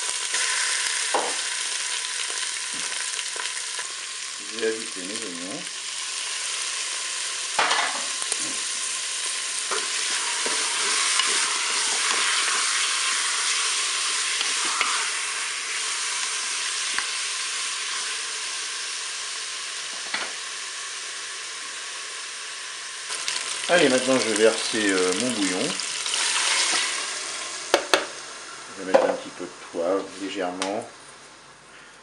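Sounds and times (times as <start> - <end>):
chicken and onions sizzling: 0.0 - 31.0.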